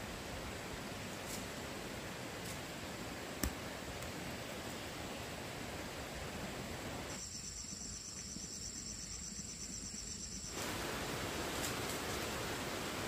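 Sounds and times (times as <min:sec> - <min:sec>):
steady hiss: 0:00.0 - 0:13.0
high-pitched insect trill: 0:07.2 - 0:10.6.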